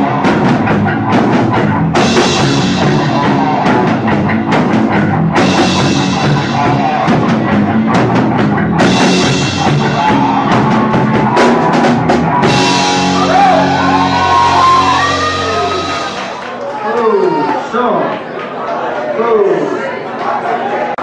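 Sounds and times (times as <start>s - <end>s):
live rock band playing: 0.0s - 16.6s
pounding drum kit: 0.0s - 16.6s
sustained guitar notes ringing: 8.7s - 16.4s.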